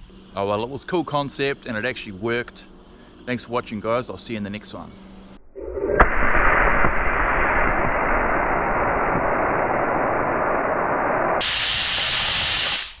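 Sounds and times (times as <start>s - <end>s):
steam hissing from boiler valve: 9.9s - 13.0s.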